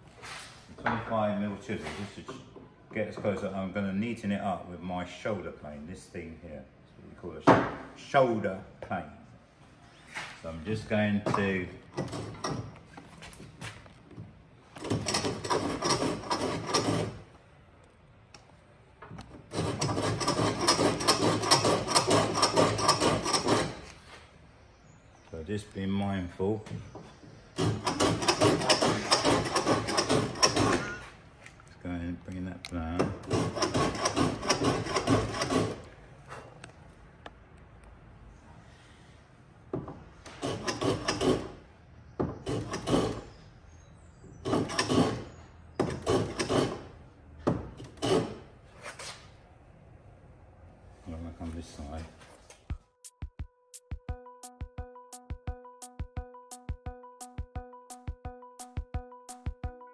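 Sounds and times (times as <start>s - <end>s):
plane shaving wood: 14.8s - 17.2s, 19.5s - 24.0s, 27.6s - 31.0s, 33.2s - 35.9s, 40.3s - 41.6s, 42.4s - 43.3s, 44.4s - 46.9s.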